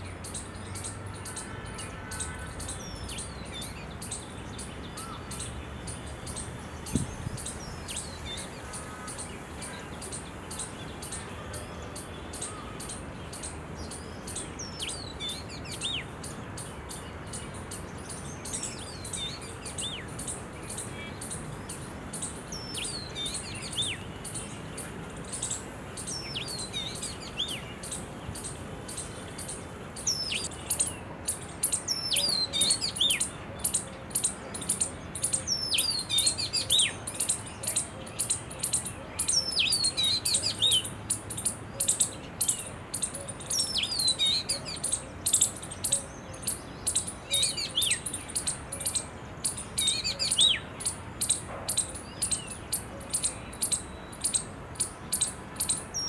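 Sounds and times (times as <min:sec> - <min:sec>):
bird whistling song: 0:25.3 - 0:56.0.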